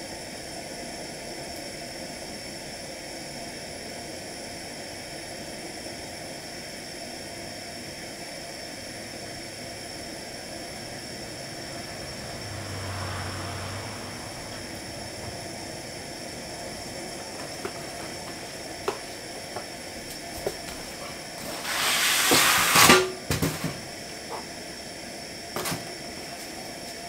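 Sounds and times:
gas burner hissing: 0.0 - 27.0
loud rushing noise: 10.9 - 18.1.

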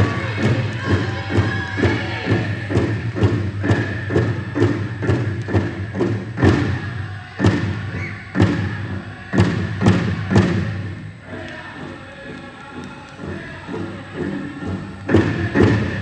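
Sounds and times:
bass drum beating: 0.0 - 10.8.

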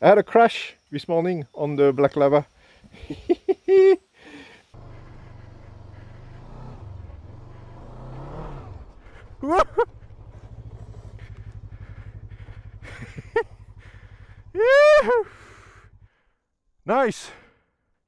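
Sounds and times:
motorcycle engine idling: 4.6 - 17.4
motorcycle engine revving: 4.7 - 16.3
person crying out: 14.6 - 15.4.

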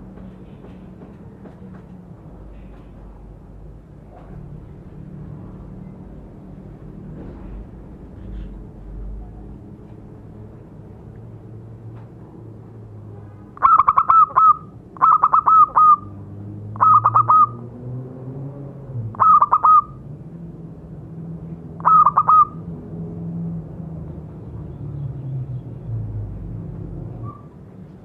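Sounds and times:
dove cooing song: 13.6 - 16.2, 16.8 - 17.6, 19.2 - 20.0, 21.8 - 22.6.

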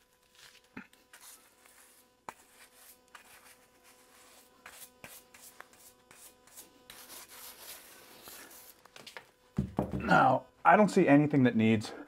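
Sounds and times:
brush scrubbing: 0.3 - 8.8.

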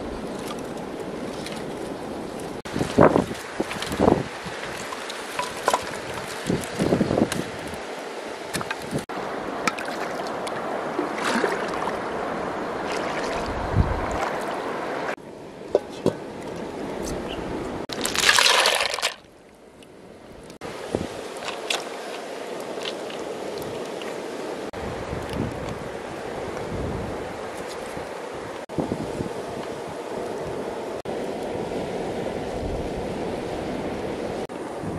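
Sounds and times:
river water sloshing and trickling: 0.0 - 17.0, 17.8 - 26.6
metal pot handled in water: 4.6 - 6.8
water splash: 8.5 - 15.1, 17.9 - 19.2.

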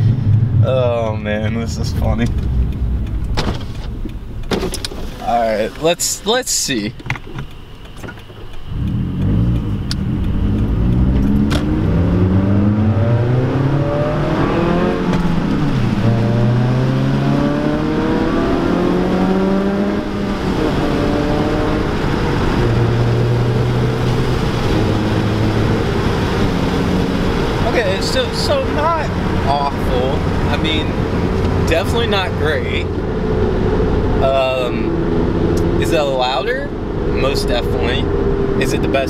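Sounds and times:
raspy car engine accelerating: 8.7 - 34.2.

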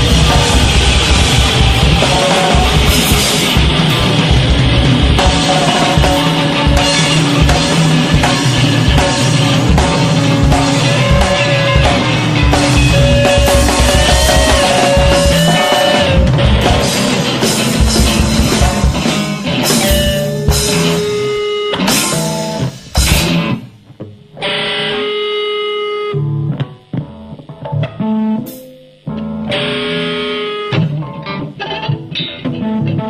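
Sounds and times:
busy drumming: 0.0 - 24.0
electric guitars: 0.0 - 33.0.

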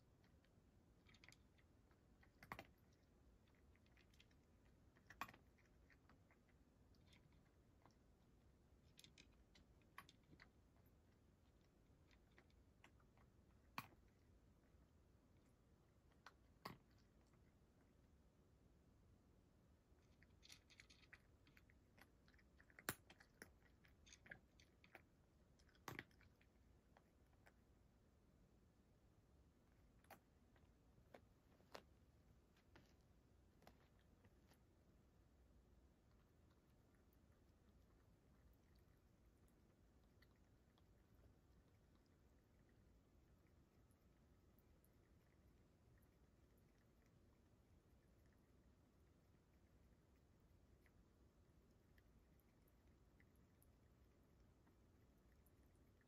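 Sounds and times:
cat crunching dry food: 0.2 - 14.4, 20.0 - 27.6.

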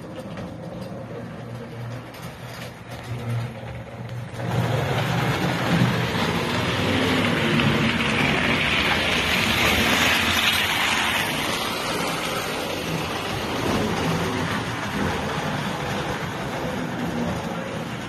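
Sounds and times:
model train wheels rolling: 0.0 - 18.0.

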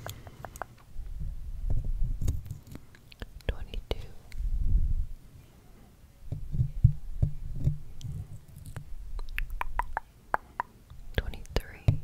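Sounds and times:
sharp wet clicks: 0.0 - 0.8, 8.0 - 11.6
mouth sounds: 8.6 - 10.8.

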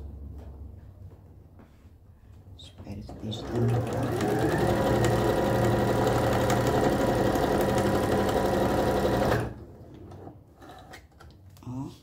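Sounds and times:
sewing machine running: 3.1 - 9.6.

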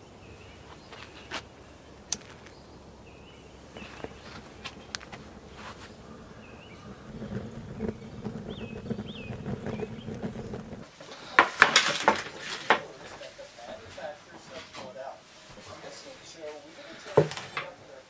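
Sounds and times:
bird chirping: 0.0 - 10.9
wood fire crackling: 0.0 - 17.7.

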